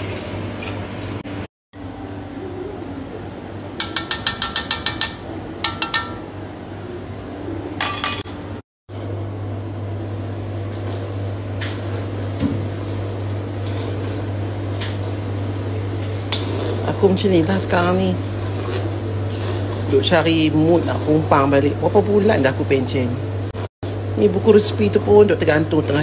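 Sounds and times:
steady low hum: 0.0 - 26.0
metal spoon clinking on a pot: 3.8 - 6.3, 7.8 - 8.4.

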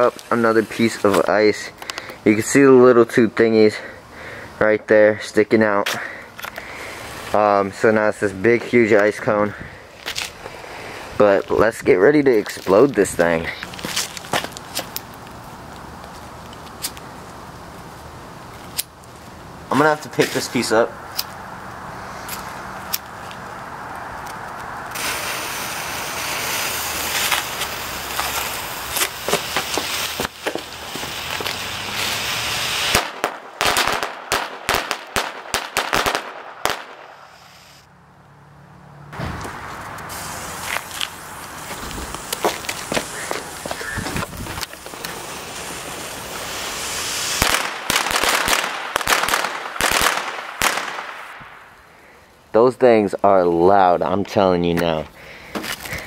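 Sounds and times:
sharp crackles: 0.0 - 2.2, 9.9 - 37.9, 39.3 - 53.9
firecracker fuse hissing: 0.0 - 2.6, 6.0 - 9.2, 9.9 - 15.7, 19.7 - 20.7, 21.8 - 23.1, 24.9 - 37.9, 39.3 - 52.4
lit fuse fizzing: 24.3 - 33.2, 39.9 - 48.6
firecracker pops: 26.4 - 32.1, 32.8 - 37.6, 46.4 - 51.7.

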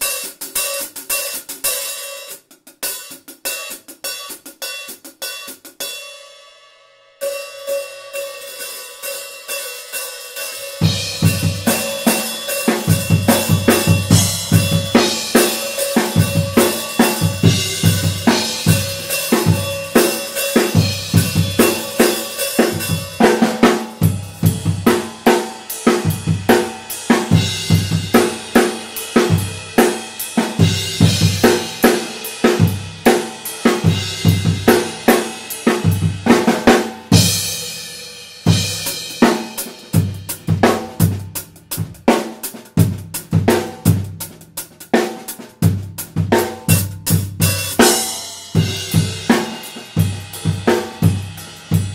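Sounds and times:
drum kit groove: 0.0 - 6.2, 7.2 - 51.9
hi-hat and ride cymbals: 0.0 - 6.6, 7.2 - 51.9
crash cymbal ringing: 7.2 - 23.2.

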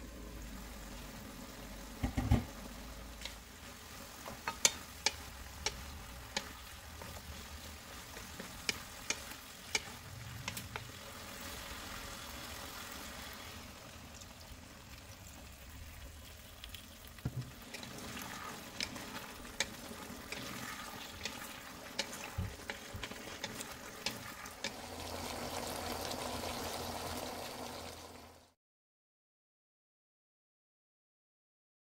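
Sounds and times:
food sizzling in a pan: 0.0 - 28.6
wooden spatula clicking on pan: 4.2 - 10.9, 17.3 - 24.8.

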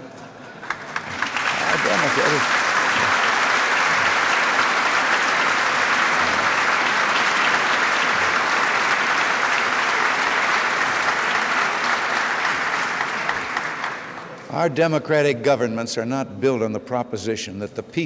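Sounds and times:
large audience applauding: 0.6 - 14.4.

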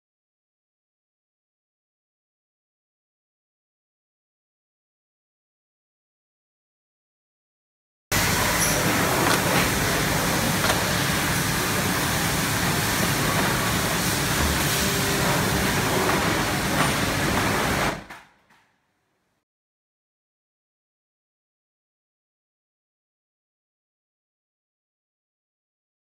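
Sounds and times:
conveyor machinery hum: 8.1 - 18.2.

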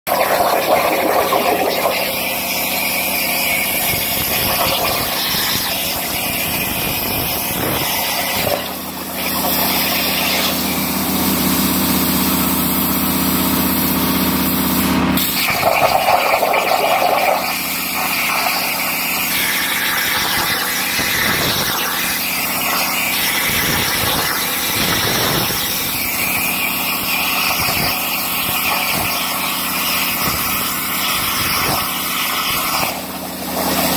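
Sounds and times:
plasma torch hissing and crackling: 0.3 - 11.3, 14.6 - 33.9.

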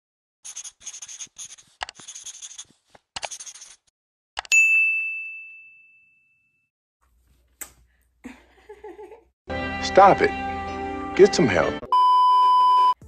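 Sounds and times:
pen scratching on paper: 0.4 - 3.9.

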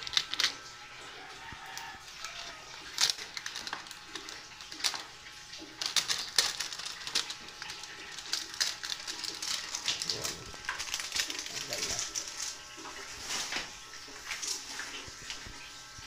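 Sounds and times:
adhesive tape being peeled: 0.0 - 0.7, 1.7 - 5.1, 5.8 - 12.6
plastic crinkling: 0.0 - 0.8, 1.4 - 15.9.

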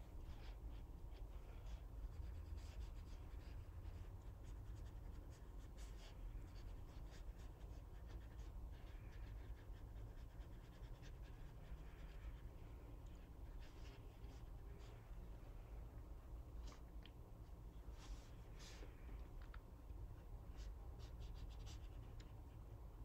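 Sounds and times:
low room hum: 0.0 - 23.0
brush swishing on paper: 17.8 - 19.0.

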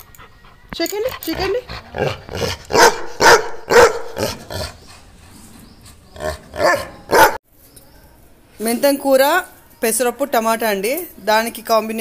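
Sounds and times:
dog barking: 2.7 - 4.4, 6.6 - 7.4.

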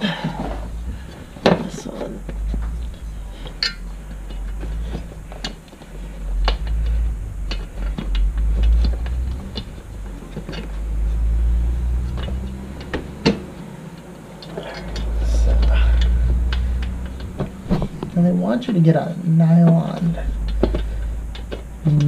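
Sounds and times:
low rumble: 0.0 - 22.0
metal bracket clinking: 1.2 - 5.7.

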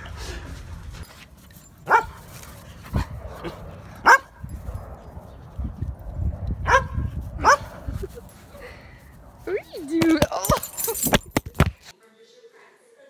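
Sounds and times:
dog barking: 1.9 - 2.2, 4.0 - 4.4, 6.6 - 7.7.

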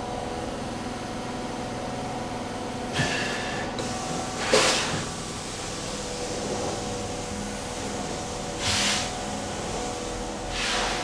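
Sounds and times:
cleaning machine humming: 0.0 - 11.0.

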